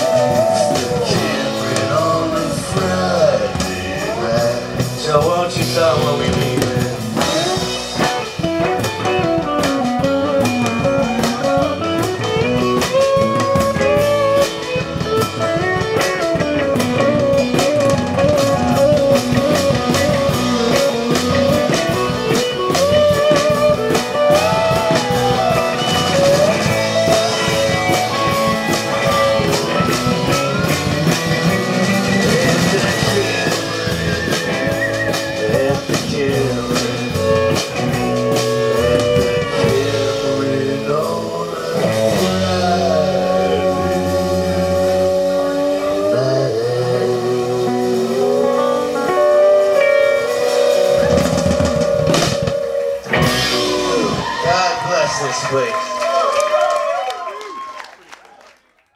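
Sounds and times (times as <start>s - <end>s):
slide steel guitar lead: 0.0s - 55.6s
bass guitar: 0.0s - 57.8s
drums: 0.0s - 58.6s.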